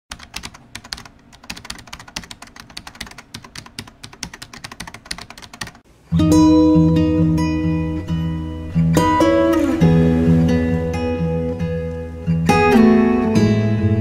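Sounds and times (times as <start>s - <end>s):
strummed guitar music: 6.1s - 14.0s.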